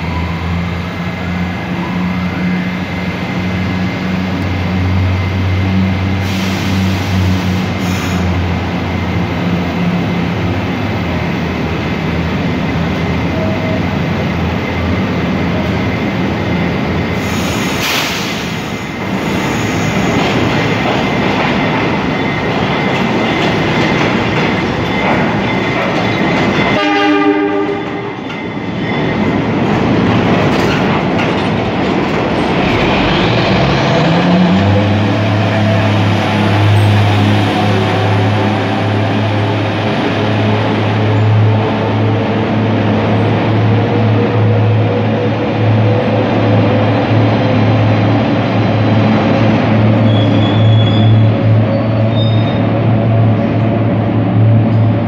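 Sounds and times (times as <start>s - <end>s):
standing train humming: 0.0s - 55.0s
train wheels rumbling and clattering: 0.0s - 55.0s
train horn blast: 26.7s - 28.2s.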